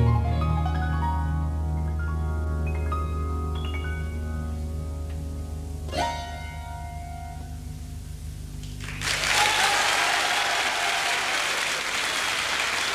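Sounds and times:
audience applause: 0:08.8 - 0:12.9.

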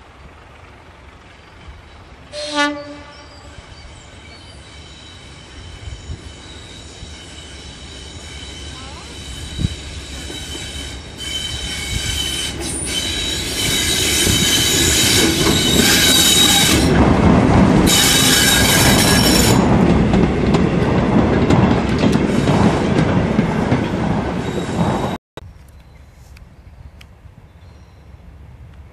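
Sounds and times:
diesel locomotive engine passing: 0:00.0 - 0:25.2
high-pitched wheel squealing: 0:03.2 - 0:16.9, 0:17.9 - 0:19.7
wheels clicking over rail joints: 0:12.0 - 0:24.9.

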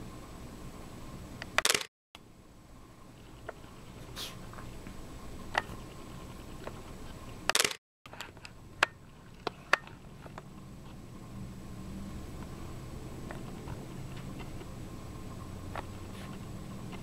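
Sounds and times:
camera shutter clicks: 0:01.6 - 0:01.9, 0:07.5 - 0:07.8.

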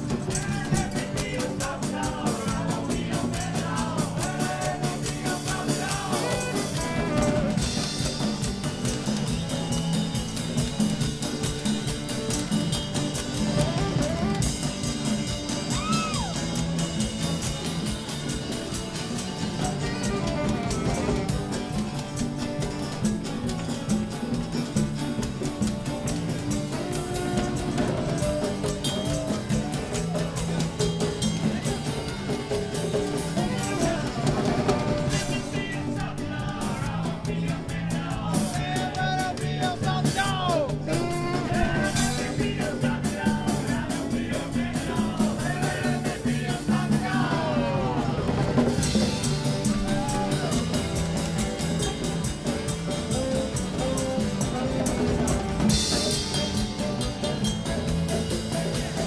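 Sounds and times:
live rock band playing: 0:00.0 - 0:59.0
bending electric guitar lead: 0:05.5 - 0:36.7, 0:46.7 - 0:59.0.

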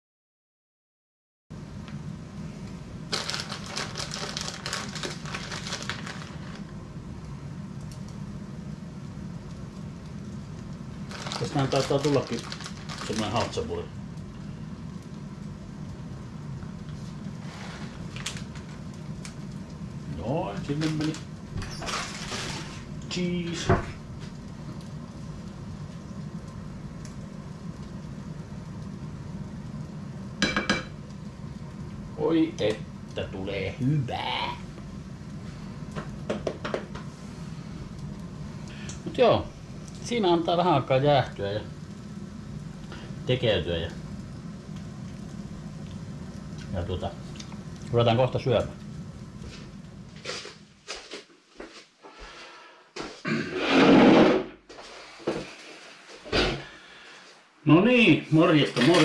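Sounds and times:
low kitchen hum: 0:01.5 - 0:59.0
plastic bag crinkling: 0:03.1 - 0:06.7, 0:11.0 - 0:13.7, 0:17.5 - 0:19.4, 0:20.5 - 0:23.0.

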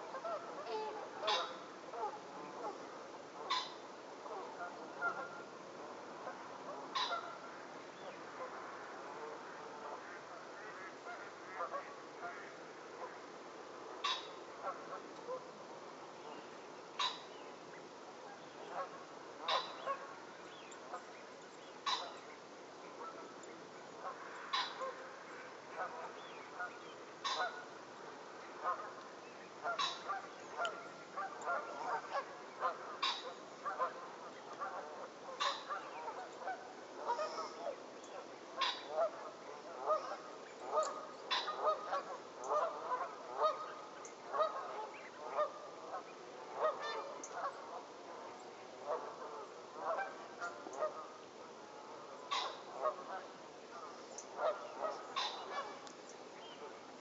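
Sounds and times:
geese honking: 0:00.0 - 0:02.8, 0:06.2 - 0:07.5, 0:18.7 - 0:20.2, 0:24.0 - 0:27.7, 0:28.6 - 0:29.0, 0:29.6 - 0:48.2, 0:48.8 - 0:55.9.

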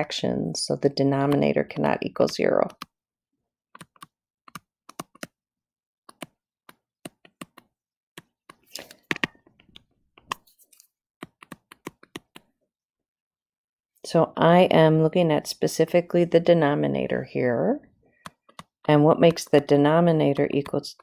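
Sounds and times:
pen tapping on touchscreen: 0:06.1 - 0:09.3.

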